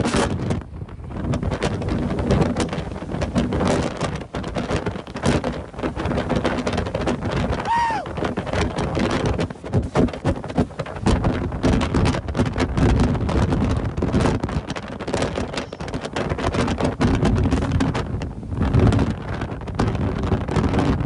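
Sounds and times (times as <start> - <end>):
gusting storm wind on microphone: 0.0 - 21.0.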